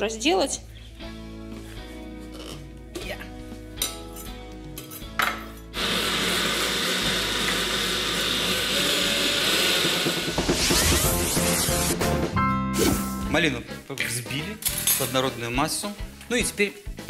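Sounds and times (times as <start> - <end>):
electric blender running: 5.7 - 12.0.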